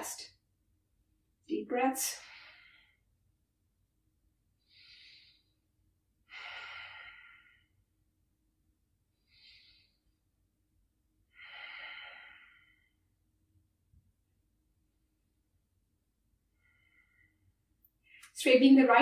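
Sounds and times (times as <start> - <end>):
woman breathing deeply: 2.2 - 3.1, 4.6 - 7.8, 9.1 - 10.2, 11.3 - 13.1, 16.5 - 18.3.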